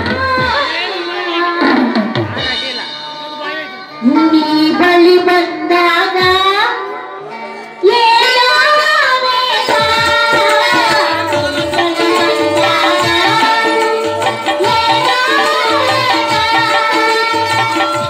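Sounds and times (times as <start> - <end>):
woman singing: 0.0 - 2.0, 4.0 - 7.1, 7.8 - 18.0
regular drum beat: 0.0 - 3.6, 9.6 - 18.0
instrumental music: 7.2 - 18.0.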